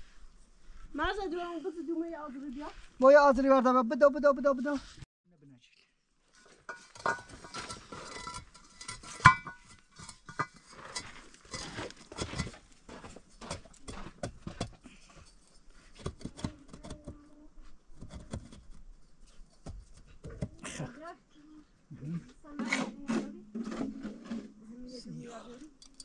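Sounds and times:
bricks clinking and scraping: 6.4 - 17.2, 18.0 - 20.6.

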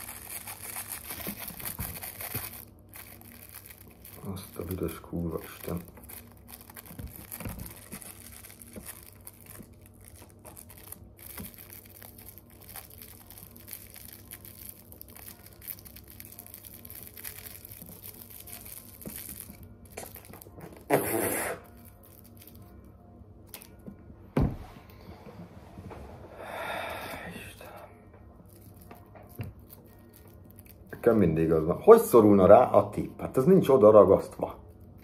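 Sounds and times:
rolling paper crinkling: 0.0 - 20.9, 21.6 - 22.9, 28.5 - 32.2.

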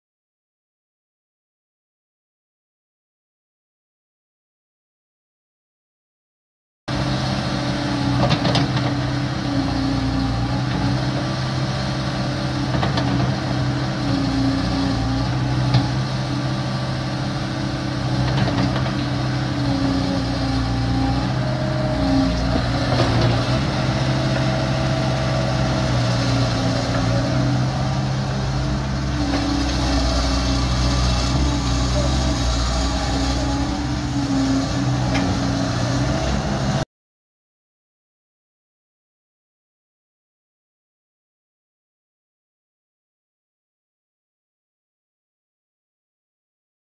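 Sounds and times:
excavator diesel engine running: 6.9 - 36.8.

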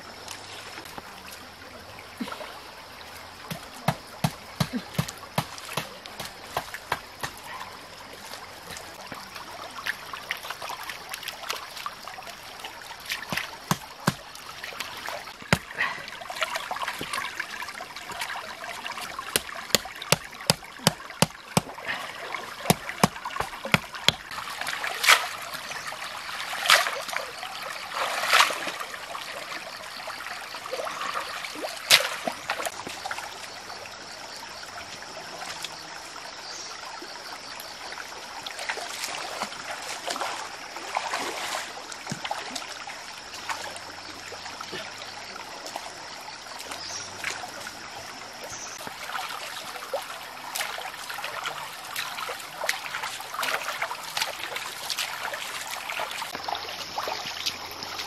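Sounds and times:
stream water trickling: 0.0 - 58.0.

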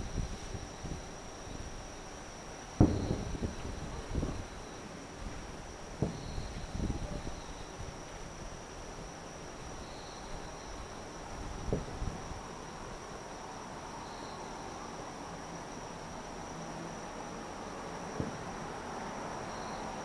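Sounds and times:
night insects trilling: 0.0 - 20.0
distant firework boom: 2.8 - 4.4, 6.0 - 7.2.

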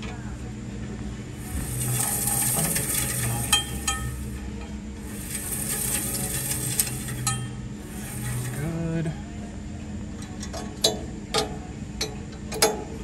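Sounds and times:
saw blade scraping past guide: 1.4 - 8.9.

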